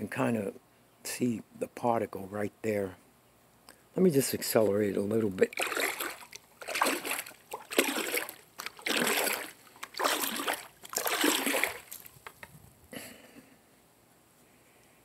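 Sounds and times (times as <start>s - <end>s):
rhythmic swishing of seashell: 5.4s - 12.4s.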